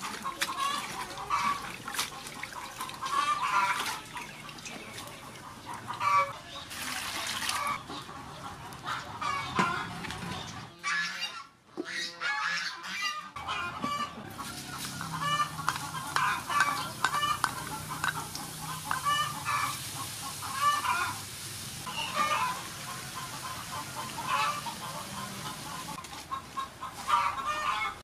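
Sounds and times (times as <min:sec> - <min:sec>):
chickens clucking: 0:00.0 - 0:28.0
garlic sizzling in oil: 0:14.6 - 0:24.8.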